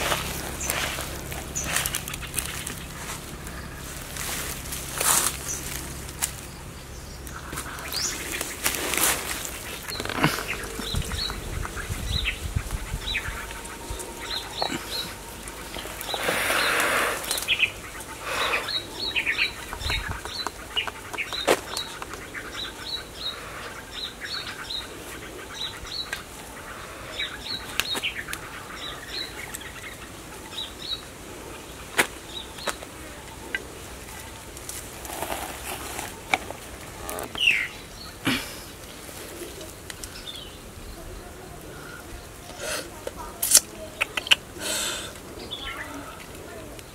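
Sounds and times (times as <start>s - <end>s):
sharp snaps: 43.1s - 44.5s.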